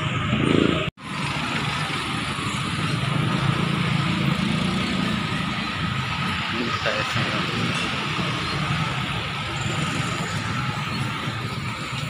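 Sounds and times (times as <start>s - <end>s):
traffic engines passing: 0.0s - 12.0s.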